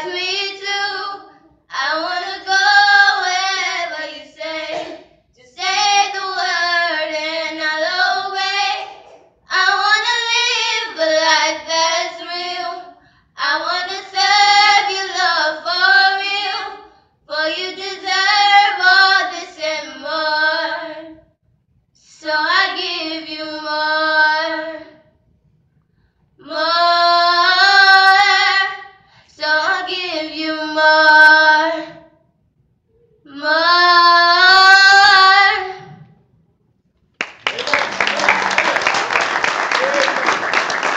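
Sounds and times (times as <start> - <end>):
girls singing unaccompanied: 0.0 - 21.1, 22.2 - 25.0, 26.4 - 32.1, 33.3 - 36.0.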